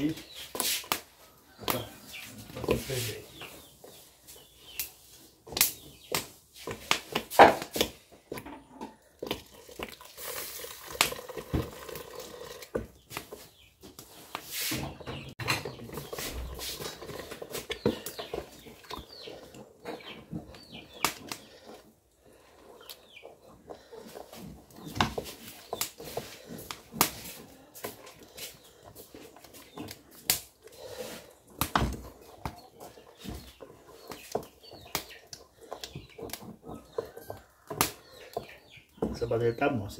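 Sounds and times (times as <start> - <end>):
wooden spoon stirring porridge in pot: 0.0 - 39.9
metal pots clanking: 8.4 - 12.8, 15.3 - 18.8
milk pouring into a pot: 9.2 - 12.8.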